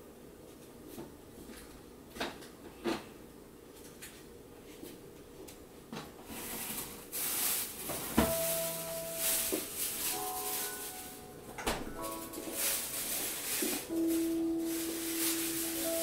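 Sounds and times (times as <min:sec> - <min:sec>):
ink brush sweeping across paper: 0:08.3 - 0:11.3, 0:12.5 - 0:16.0.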